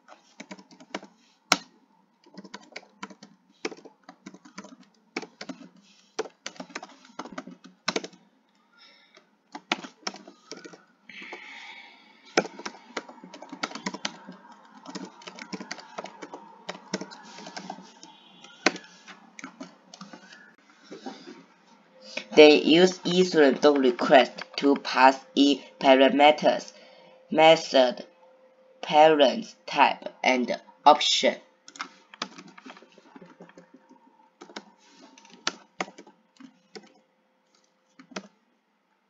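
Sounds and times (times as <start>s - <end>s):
computer keyboard typing: 0.0s - 8.2s, 9.1s - 20.5s, 31.7s - 38.4s.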